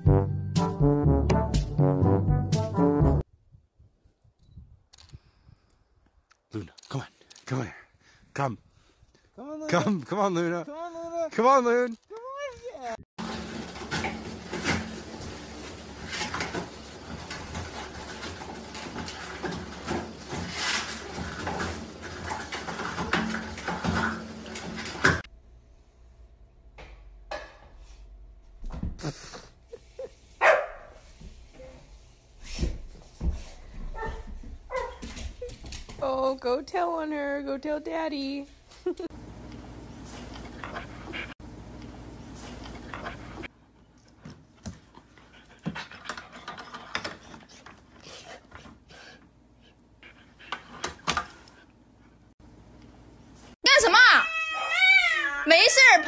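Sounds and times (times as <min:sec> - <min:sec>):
dog panting: 0:40.2 - 0:41.4.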